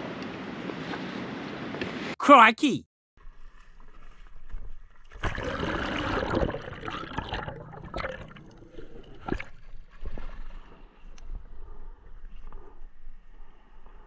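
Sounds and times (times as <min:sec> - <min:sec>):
seawater sloshing and gurgling: 0:04.1 - 0:11.0.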